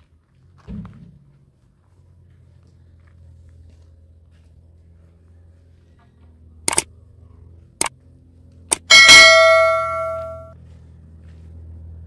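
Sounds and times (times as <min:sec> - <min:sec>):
bright bell ding: 0:08.7 - 0:10.6.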